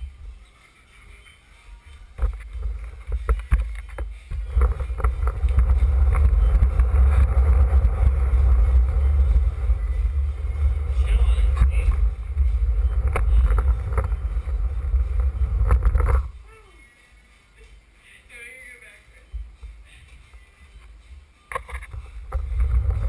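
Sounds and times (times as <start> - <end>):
skateboard wheels rolling on wood: 2.2 - 16.3, 21.8 - 23.0.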